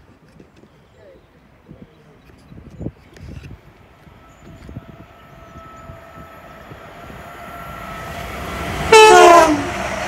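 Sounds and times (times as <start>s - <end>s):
train rushing past: 3.8s - 10.0s
two-tone train horn: 4.3s - 10.0s.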